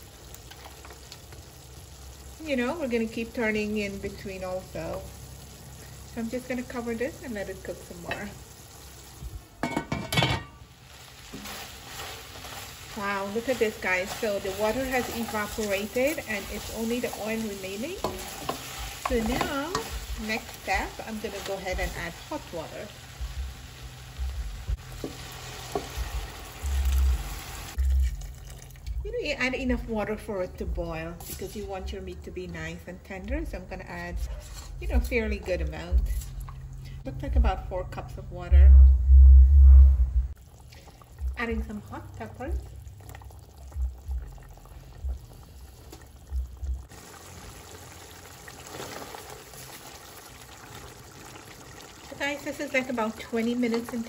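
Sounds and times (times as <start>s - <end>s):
meat sizzling in hot oil: 0.0s - 9.4s, 10.6s - 28.7s, 43.2s - 54.0s
water pouring into pot: 8.3s - 9.3s, 10.6s - 29.1s, 40.4s - 54.0s
spatula stirring thick curry: 11.2s - 21.5s
dull low thumps: 23.2s - 25.0s, 38.3s - 40.4s, 43.7s - 45.3s.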